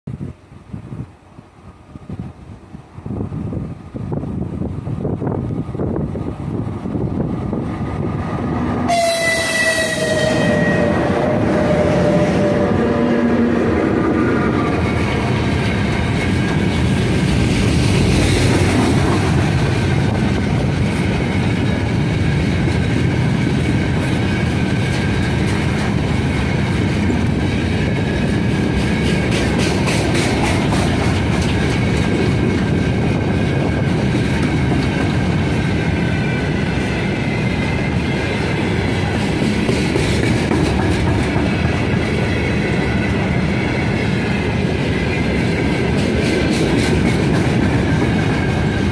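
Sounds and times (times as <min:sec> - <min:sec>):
train wheels rumbling on rails: 0:00.1 - 0:48.9
clickety-clack over rail joints: 0:13.5 - 0:48.9.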